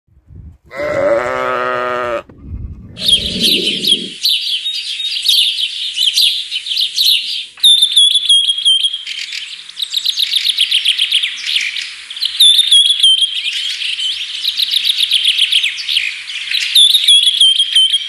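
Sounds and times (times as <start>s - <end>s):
bleat-like animal call: 0.7s - 4.2s
small birds chirping: 2.8s - 18.0s
quick bird trill: 2.9s - 4.4s.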